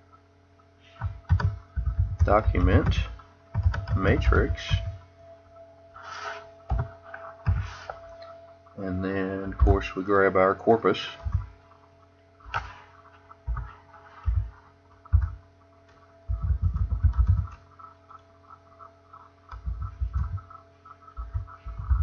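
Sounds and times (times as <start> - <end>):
steady electrical hum: 0.0 - 22.0
computer keyboard typing: 0.9 - 5.0, 6.6 - 8.0, 11.1 - 11.8, 12.4 - 22.0.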